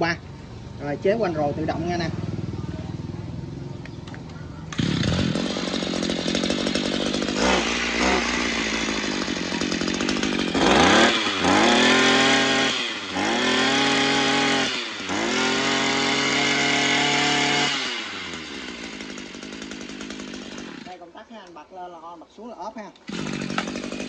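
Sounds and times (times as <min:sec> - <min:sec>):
brush cutter engine revving: 0:04.0 - 0:21.3, 0:22.9 - 0:24.0.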